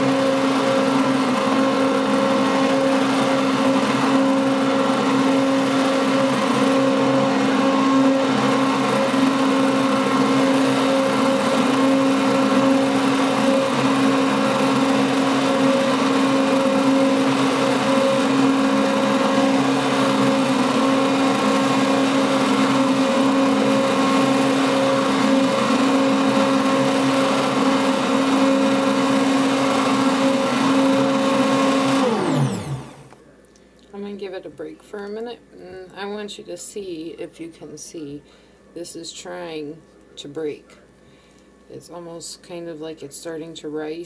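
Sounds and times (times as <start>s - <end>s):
stick blender motor hum: 0.0s - 33.2s.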